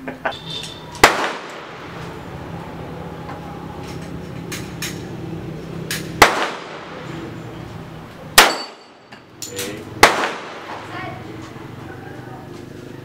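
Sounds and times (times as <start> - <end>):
handgun shots: 1.0 - 1.7, 5.9 - 6.9, 8.4 - 8.9, 9.6 - 10.8.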